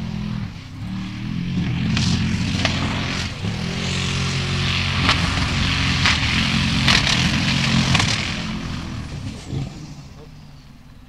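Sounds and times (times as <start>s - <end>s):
buggy engine running hard: 0.0s - 11.0s
tyres throwing mud: 1.6s - 10.4s.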